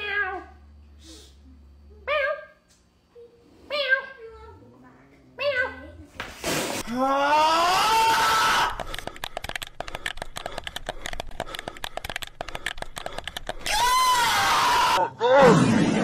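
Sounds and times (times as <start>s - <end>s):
rapid irregular clicking: 8.7s - 13.7s.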